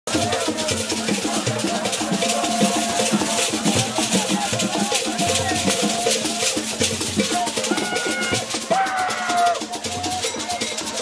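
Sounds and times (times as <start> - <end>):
dance music on drums and shakers: 0.1 - 11.0
pitched notes: 5.2 - 11.0.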